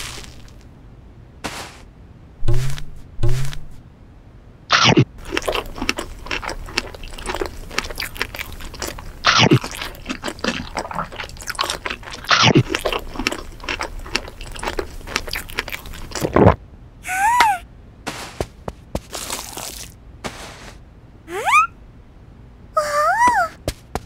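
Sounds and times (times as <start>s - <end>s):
loud crunchy bites: 0.0s - 0.6s, 4.7s - 16.6s, 19.1s - 20.0s
wet crunchy chewing: 0.0s - 0.6s, 4.7s - 16.6s, 19.0s - 20.0s.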